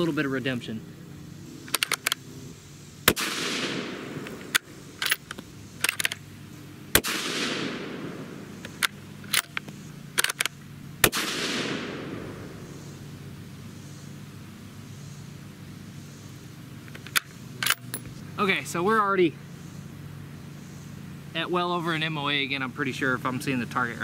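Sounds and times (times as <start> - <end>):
rifle bolt clicks: 1.7 - 2.2, 4.2 - 6.2, 8.6 - 11.2, 16.9 - 18.1
rifle shots echoing: 3.0 - 6.3, 6.9 - 9.6, 11.0 - 12.8.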